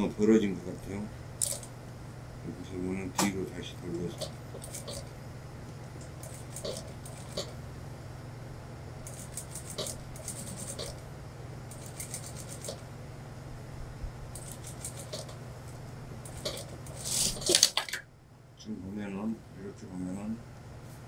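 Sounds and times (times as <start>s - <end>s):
rapid needle ticking: 11.7s - 12.8s.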